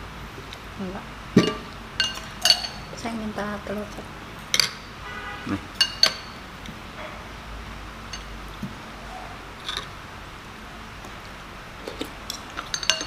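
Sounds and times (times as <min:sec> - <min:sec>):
cutlery clinking on bowls: 0:01.4 - 0:02.9, 0:04.5 - 0:04.9, 0:05.7 - 0:06.4, 0:11.9 - 0:13.0.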